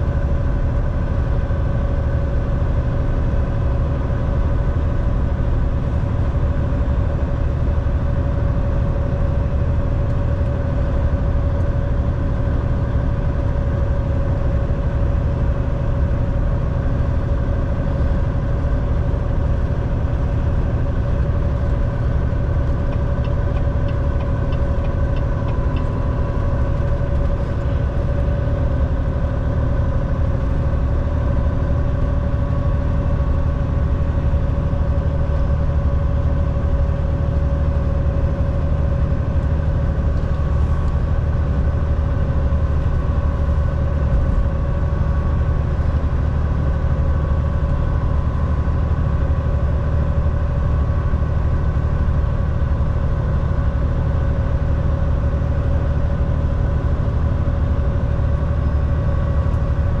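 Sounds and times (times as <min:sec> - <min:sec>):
diesel truck engine droning: 0:00.0 - 1:00.0
mid-pitched whine: 0:08.2 - 1:00.0.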